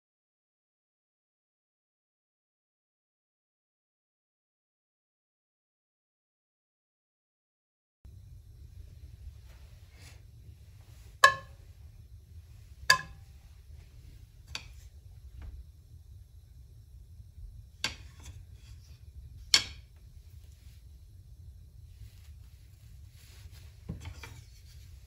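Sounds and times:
low steady hum: 8.1s - 25.0s
knocks on frying pan: 11.2s - 11.6s, 12.9s - 13.2s.

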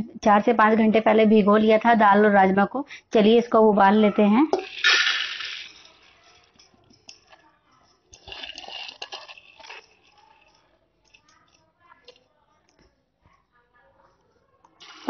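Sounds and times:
beans landing clicks: 4.5s - 7.4s, 8.0s - 12.8s, 14.7s - 15.0s
beans dropping into metal pot: 4.5s - 12.9s, 14.7s - 15.0s.

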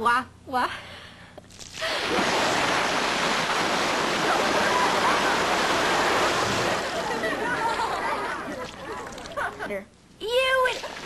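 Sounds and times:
water pouring and splashing: 1.5s - 7.8s, 10.7s - 11.0s.

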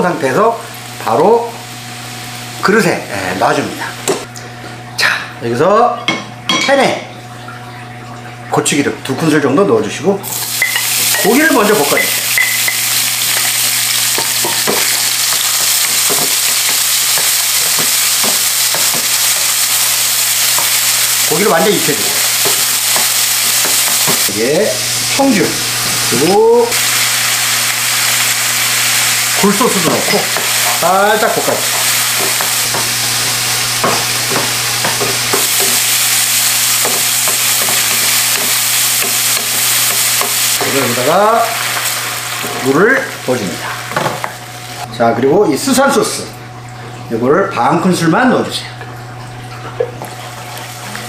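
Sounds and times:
meat sizzling in a wok: 0.0s - 4.3s, 10.2s - 44.9s.

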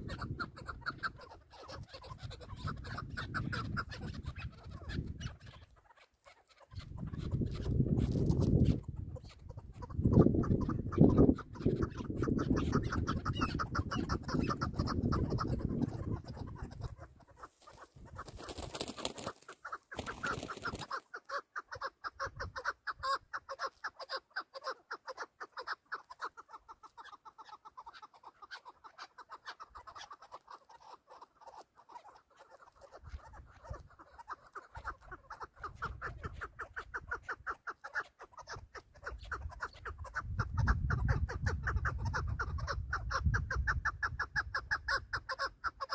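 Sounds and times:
wind rumble on microphone: 0.0s - 1.2s, 1.8s - 5.5s, 6.8s - 17.2s, 39.1s - 45.2s
partridge clucking call: 0.0s - 45.9s.

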